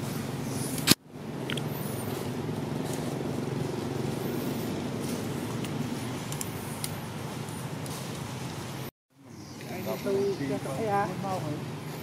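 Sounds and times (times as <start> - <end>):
motor engine humming: 0.0 - 8.9.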